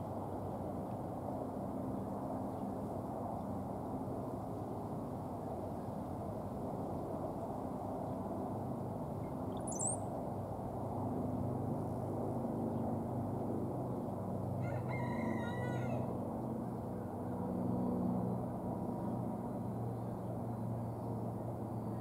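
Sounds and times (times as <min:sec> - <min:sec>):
bird song phrase: 0:09.5 - 0:10.0
high thin bird whistle: 0:09.6 - 0:10.0.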